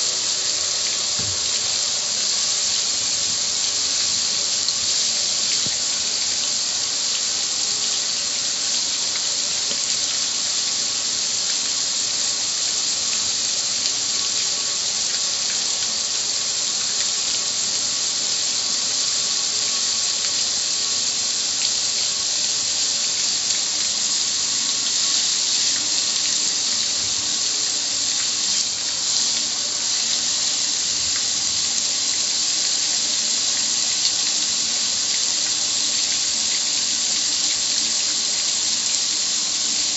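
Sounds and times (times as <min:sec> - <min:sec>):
hose spray hitting metal grill: 0:01.0 - 0:02.2.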